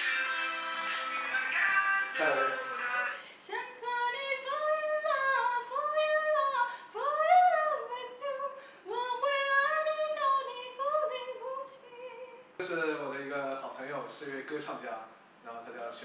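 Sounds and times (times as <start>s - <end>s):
woman singing unaccompanied: 0.0s - 12.5s.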